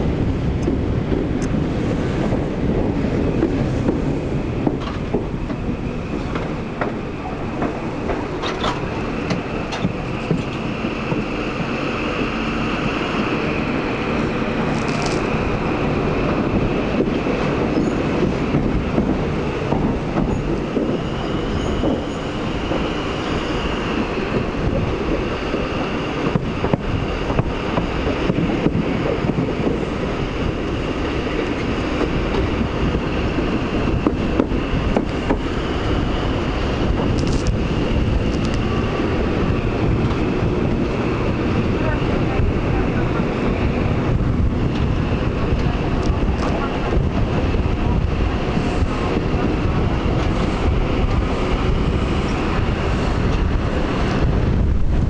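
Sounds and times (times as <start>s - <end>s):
train running noise: 0.0s - 55.0s
wheels clicking over rail joints: 2.2s - 11.8s.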